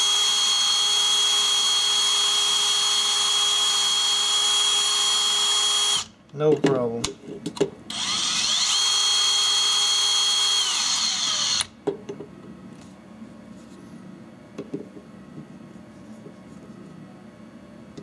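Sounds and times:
cordless drill whining: 0:00.0 - 0:06.2, 0:07.9 - 0:11.8.

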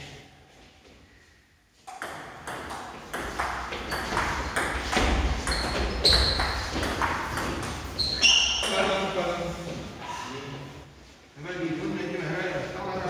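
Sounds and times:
shoes squeaking on floor: 0:00.5 - 0:10.3.

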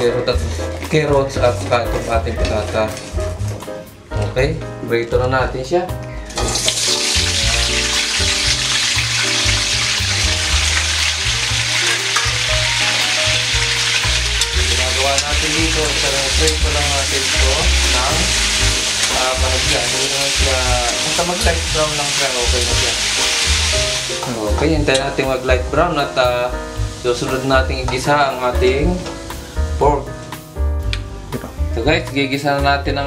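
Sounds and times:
vegetables sizzling in oil: 0:06.4 - 0:30.5
metal tongs turning food: 0:11.6 - 0:23.5.

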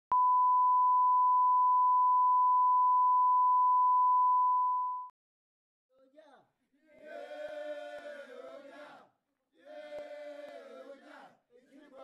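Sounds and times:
sine-wave test tone: 0:00.1 - 0:05.1.

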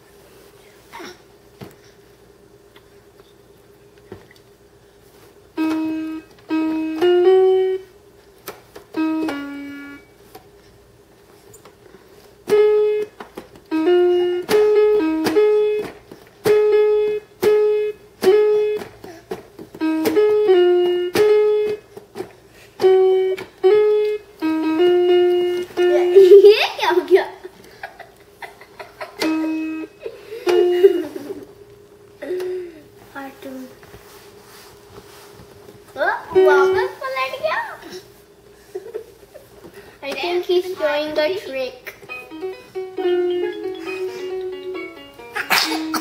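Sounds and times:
toy electronic notes: 0:05.6 - 0:07.8, 0:09.0 - 0:10.1, 0:12.5 - 0:18.8, 0:19.8 - 0:21.8, 0:22.8 - 0:26.4, 0:29.2 - 0:31.2, 0:42.1 - 0:45.4.

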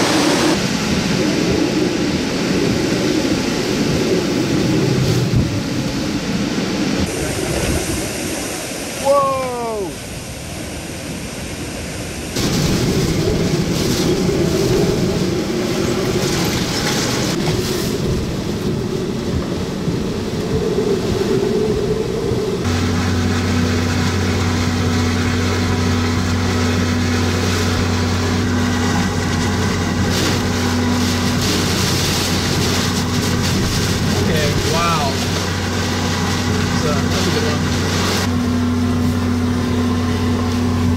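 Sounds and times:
heavy rain: 0:00.0 - 0:40.9
howling wind: 0:00.0 - 0:40.9.

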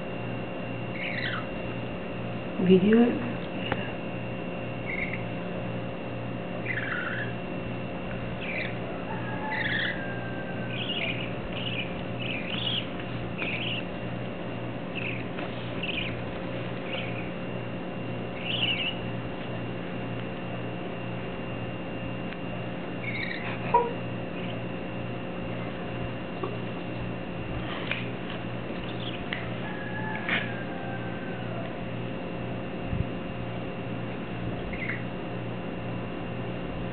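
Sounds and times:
steady low hum: 0:00.0 - 0:36.9
budgies chirping: 0:00.9 - 0:01.6, 0:04.8 - 0:05.4, 0:06.5 - 0:07.4, 0:08.2 - 0:14.1, 0:14.9 - 0:17.4, 0:18.3 - 0:19.2, 0:22.9 - 0:24.7, 0:28.7 - 0:31.7, 0:34.6 - 0:35.1.

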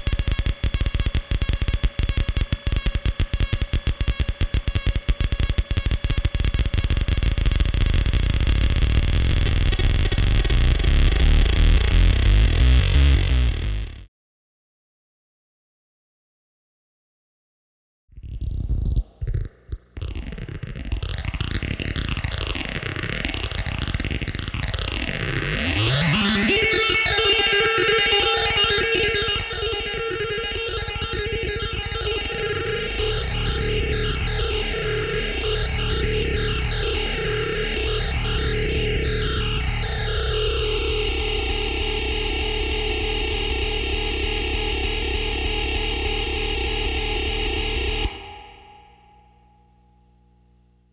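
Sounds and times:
electronic stutter of clicks and pulses: 0:00.0 - 0:14.1, 0:18.2 - 0:50.8
low buzzing drone: 0:25.8 - 0:50.9.

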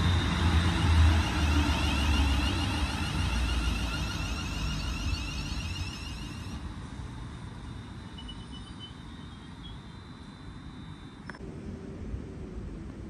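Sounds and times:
electric train rumbling past: 0:00.0 - 0:09.3
high whine: 0:00.0 - 0:09.9.

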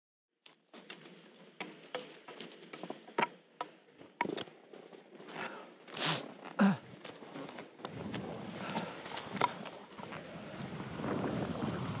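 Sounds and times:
ski pole clicks and taps: 0:01.6 - 0:04.5
fabric rustling: 0:04.6 - 0:08.4.

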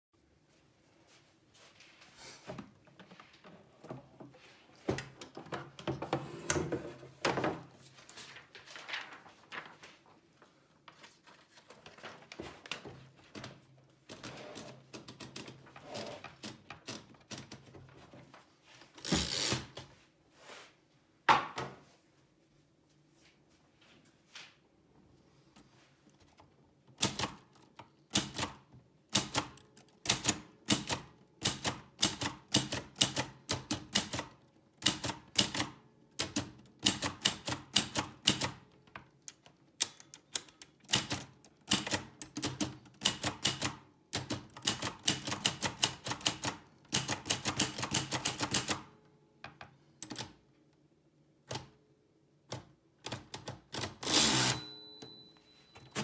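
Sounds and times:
typewriter carriage rasp: 0:14.1 - 0:17.1, 0:19.0 - 0:19.8, 0:53.8 - 0:54.7
typewriter bell ring: 0:54.1 - 0:56.0.

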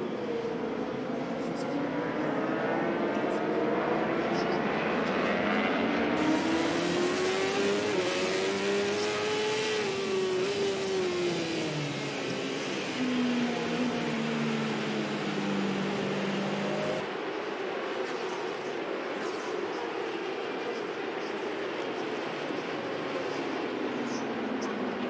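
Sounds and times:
trackside engine noise: 0:00.0 - 0:25.0
racing motorcycle engine: 0:01.6 - 0:17.1.

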